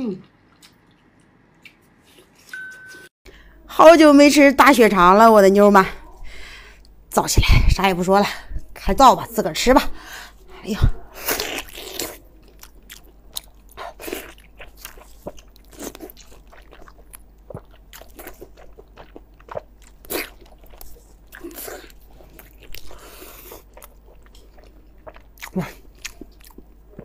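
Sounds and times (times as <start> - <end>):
close biting and chewing: 11.2 - 27.0.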